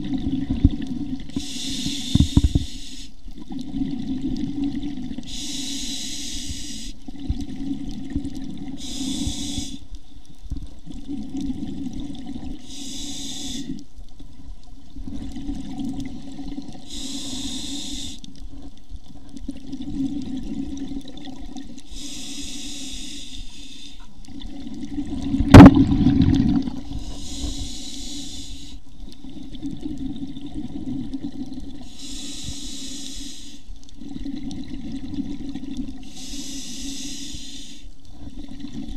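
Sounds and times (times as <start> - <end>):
underwater bubbling: 0.0 - 38.9
regulator breathing hiss: 1.3 - 3.2, 5.3 - 7.0, 8.8 - 10.0, 12.6 - 13.8, 16.8 - 18.3, 21.8 - 24.1, 26.9 - 28.9, 31.8 - 33.8, 36.0 - 38.0.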